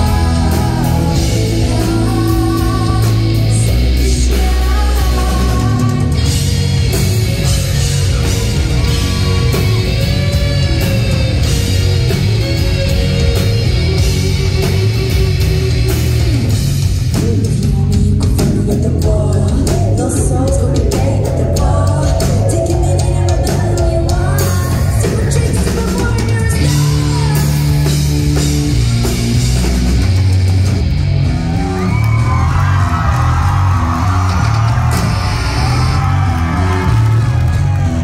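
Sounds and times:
woman singing: 0:00.0 - 0:06.4, 0:17.2 - 0:27.9
bass guitar: 0:00.0 - 0:38.0
drum kit: 0:00.0 - 0:38.0
electric guitars: 0:00.0 - 0:38.0.

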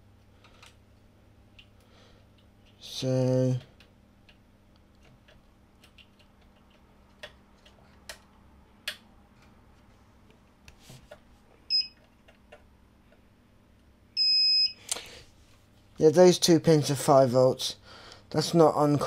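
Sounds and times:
multimeter beep: 0:11.7 - 0:12.0, 0:14.2 - 0:14.8.

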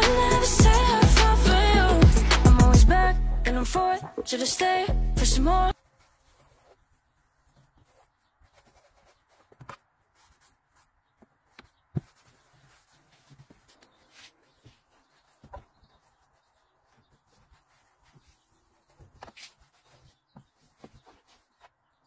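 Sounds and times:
cloth rubbing: 0:05.7 - 0:21.8.

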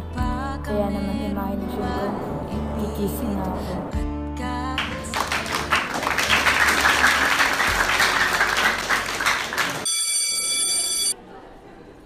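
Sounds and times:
students clapping: 0:04.8 - 0:09.9.

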